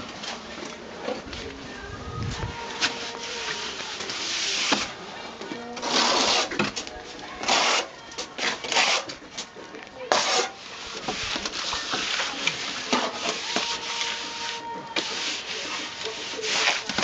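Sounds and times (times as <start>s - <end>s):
trowel scraping cement on stone: 2.7s - 5.0s, 5.7s - 17.0s.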